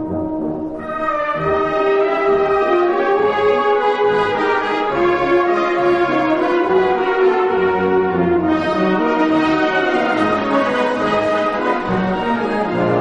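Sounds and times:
brass and horns: 0:00.0 - 0:13.0
orchestral waltz music: 0:00.0 - 0:13.0.

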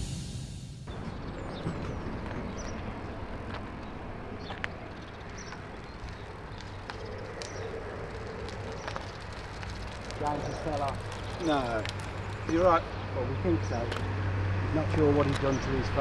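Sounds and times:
steady low rumble: 0:00.0 - 0:12.4.

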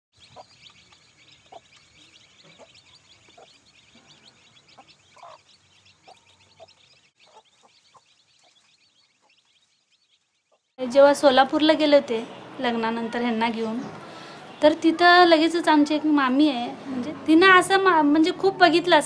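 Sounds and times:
hen clucking: 0:00.2 - 0:09.6
chicks peeping: 0:00.2 - 0:10.8.

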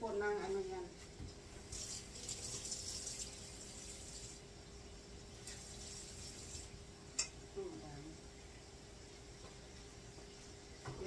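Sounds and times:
tap running water into container: 0:01.7 - 0:04.4.

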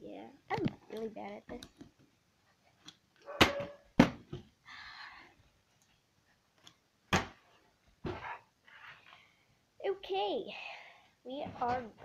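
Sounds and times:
plastic bottle landing on hard surface: 0:03.5 - 0:04.5, 0:07.1 - 0:07.4.

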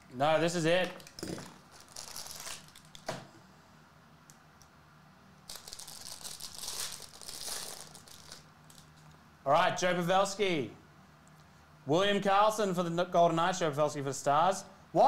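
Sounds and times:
foil wrapper crinkling: 0:00.8 - 0:03.1, 0:05.5 - 0:09.0.

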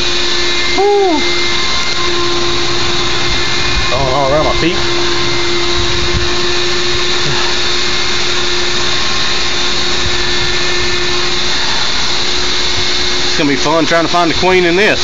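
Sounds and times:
vacuum motor humming: 0:00.0 - 0:15.0
rushing air through hose: 0:03.1 - 0:13.3.

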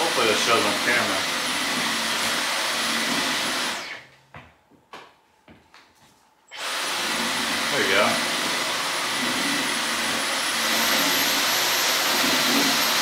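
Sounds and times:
vacuum cleaner whooshing: 0:00.0 - 0:02.4.

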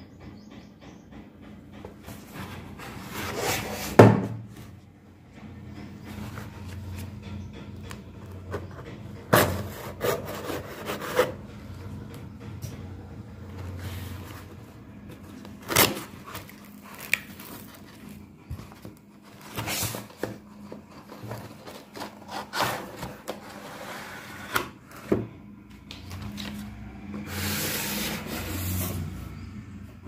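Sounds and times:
cardboard box rubbing and scraping: 0:02.2 - 0:04.4, 0:09.3 - 0:11.4, 0:18.7 - 0:25.0, 0:27.3 - 0:29.2.

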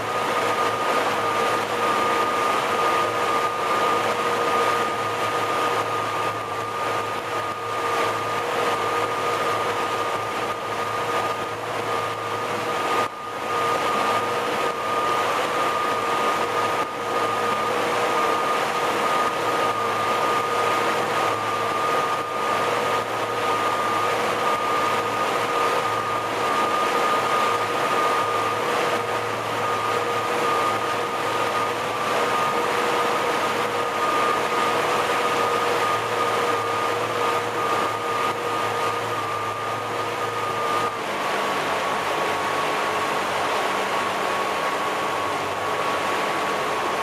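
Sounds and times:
boat engine drone with whine: 0:00.0 - 0:47.0.

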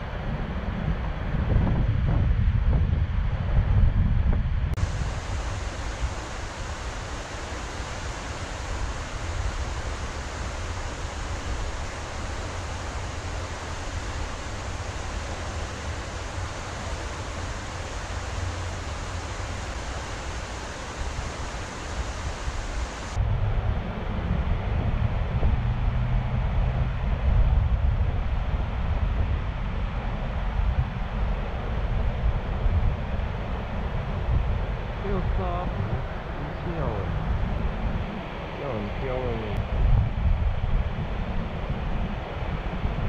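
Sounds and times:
rushing water with low rumble: 0:00.0 - 0:43.0.

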